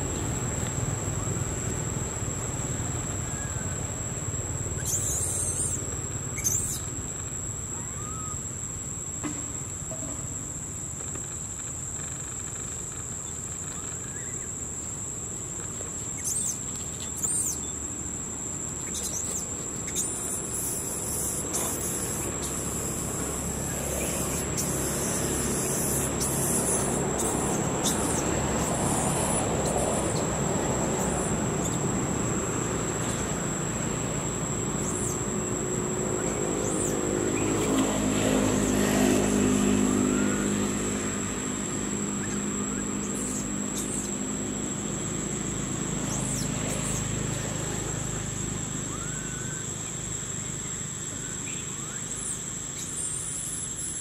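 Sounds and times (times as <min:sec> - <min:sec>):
engine humming: 0:00.0 - 0:53.9
insect whine: 0:00.0 - 0:54.0
road traffic passing: 0:00.0 - 0:54.0
bird chirps: 0:04.8 - 0:07.0, 0:13.2 - 0:14.6, 0:16.2 - 0:17.8, 0:18.8 - 0:31.8, 0:42.0 - 0:44.2, 0:48.8 - 0:54.0.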